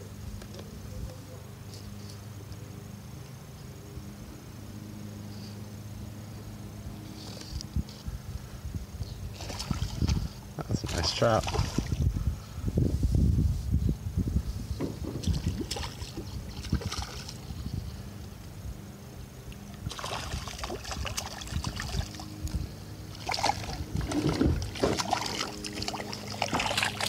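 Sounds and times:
fish splashing at water surface: 9.3s - 10.3s, 10.9s - 12.0s, 15.1s - 17.6s, 19.6s - 22.4s, 23.1s - 27.0s.

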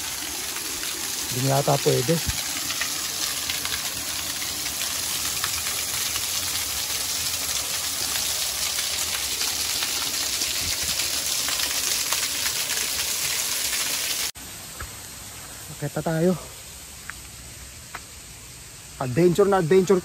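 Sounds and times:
water rushing: 0.0s - 14.4s.

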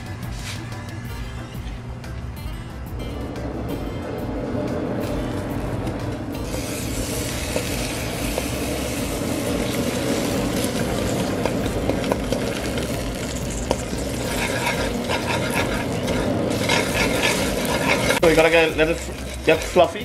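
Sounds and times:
sugar sizzling in hot oil: 6.3s - 20.0s.

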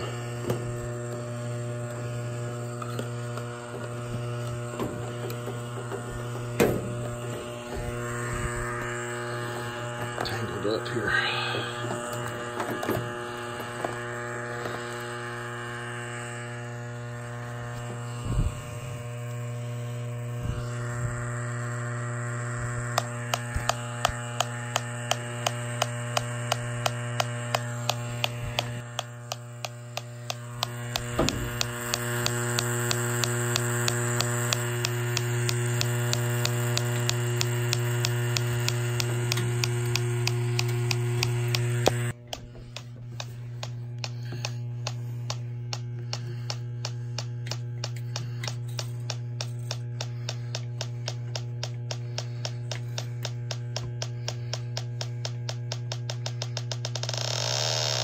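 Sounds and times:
leak detector electric hum: 0.0s - 58.0s
leak detector ticking: 22.1s - 58.0s.

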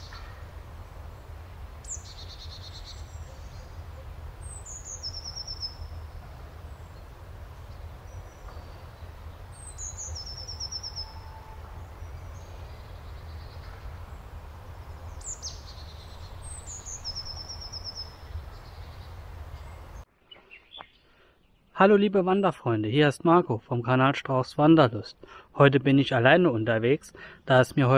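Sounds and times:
steady low rumble: 0.0s - 20.1s
songbird singing: 0.0s - 22.9s.

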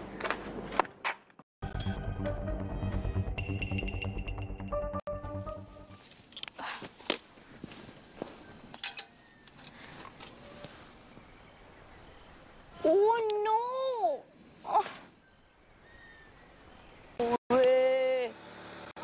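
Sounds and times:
crickets chirping: 6.0s - 17.4s, 18.2s - 18.8s.

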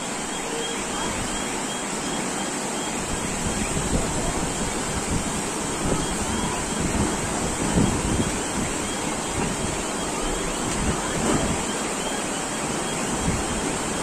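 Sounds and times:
floodwater rushing: 0.0s - 14.0s
wind buffeting microphone: 3.0s - 11.7s.

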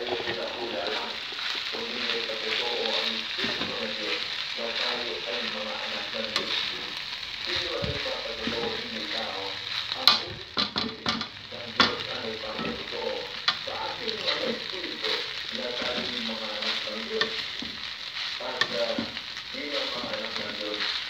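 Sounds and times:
fried rice sizzling in a pan: 0.0s - 21.0s
spatula knocking against pan: 10.1s - 12.0s.

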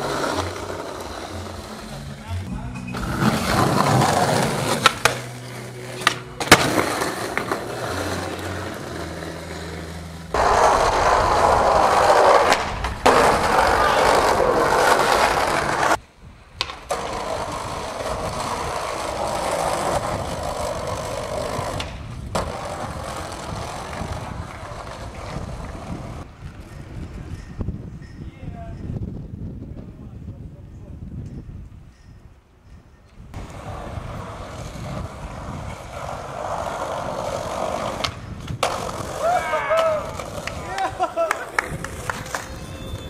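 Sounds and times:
skateboard wheels rolling: 0.0s - 27.7s, 33.3s - 43.0s
skateboard popping and landing: 2.9s - 16.0s, 16.6s - 26.3s, 33.4s - 42.6s.

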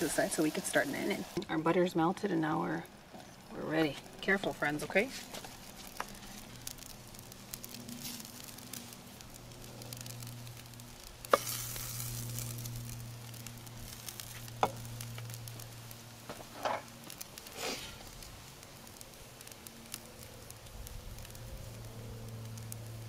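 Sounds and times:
food sizzling on a grill: 0.0s - 23.0s
low hum: 5.9s - 17.2s.

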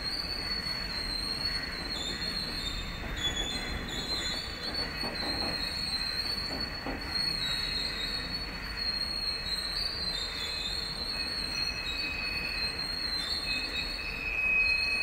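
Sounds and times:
high wavering wheel squeal: 0.0s - 15.0s
train wheels rumbling on rails: 0.0s - 15.0s
clacks over rail joints: 1.2s - 8.3s.

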